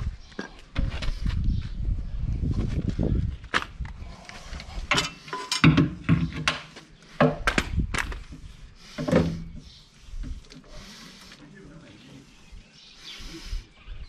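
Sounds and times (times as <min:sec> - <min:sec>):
metal clanks and knocks: 0:04.9 - 0:07.5.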